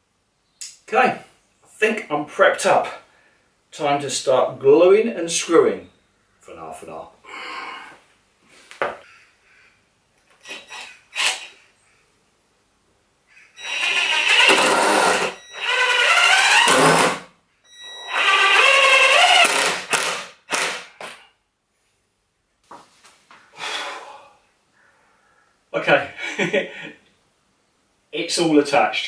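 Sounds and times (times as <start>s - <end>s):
cordless drill driving screws: 10.4s - 11.6s, 13.6s - 20.9s.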